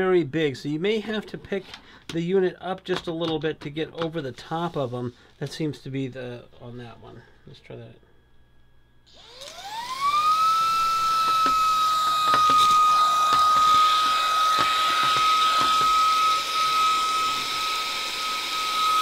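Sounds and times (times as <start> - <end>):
handheld vacuum motor whine: 9.1 - 19.0.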